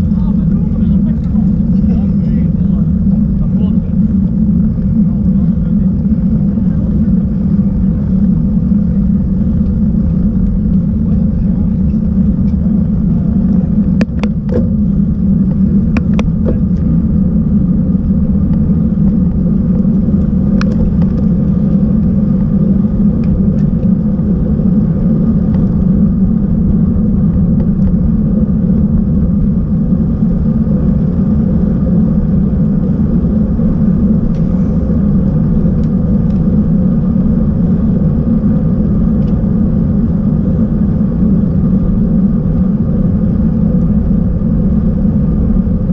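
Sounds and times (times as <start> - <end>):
bike tyres rolling on asphalt: 0.0 - 45.9
wind buffeting microphone: 0.0 - 45.9.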